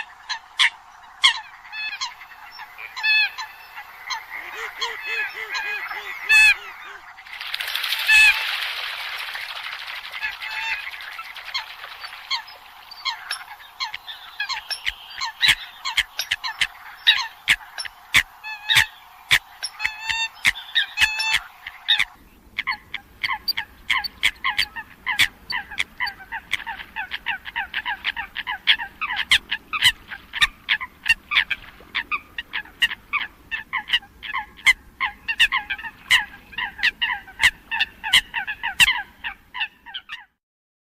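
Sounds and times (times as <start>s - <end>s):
coots honking and clicking: 4.2s - 7.1s
low background rumble: 9.4s - 39.6s.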